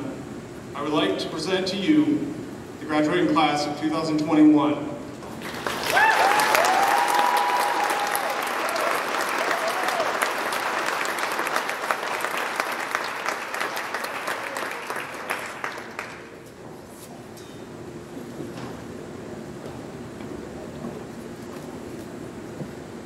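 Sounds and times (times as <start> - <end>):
audience applauding: 5.4 - 16.4
cheering whoops: 5.7 - 10.6, 14.0 - 15.1.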